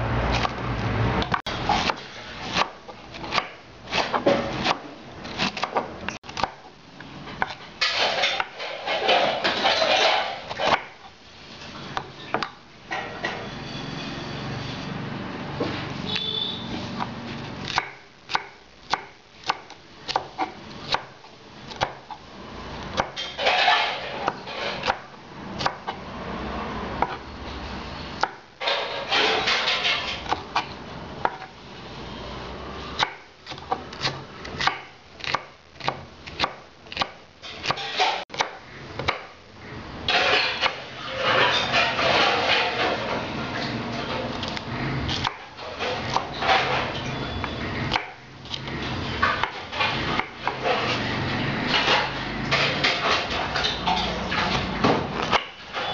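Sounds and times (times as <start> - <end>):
knife scraping and crunching: 0.2 - 6.6, 7.3 - 12.4, 22.8 - 26.1, 28.2 - 31.6, 32.8 - 39.3, 40.0 - 55.9.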